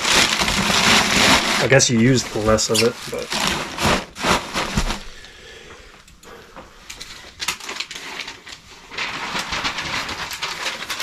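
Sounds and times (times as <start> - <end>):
packing paper crumpling: 0.0 - 5.2, 6.9 - 11.0.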